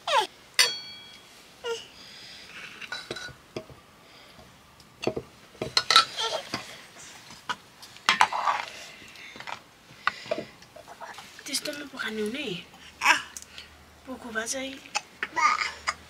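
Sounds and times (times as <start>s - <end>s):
metal utensils clinking on pots: 0.6s - 1.2s, 5.0s - 6.7s.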